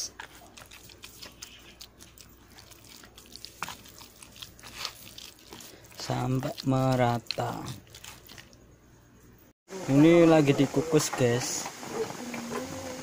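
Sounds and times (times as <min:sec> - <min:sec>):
hand kneading moist mixture: 0:00.0 - 0:08.8.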